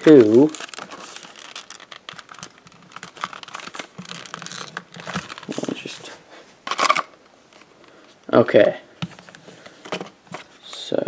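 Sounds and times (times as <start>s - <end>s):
cardboard box crinkling and tearing: 0.0s - 6.0s.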